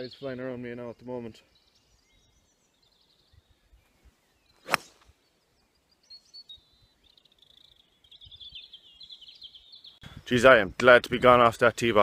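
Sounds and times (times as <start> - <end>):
club swing swish: 4.6 - 5.0
golf club striking ball: 4.6 - 5.0.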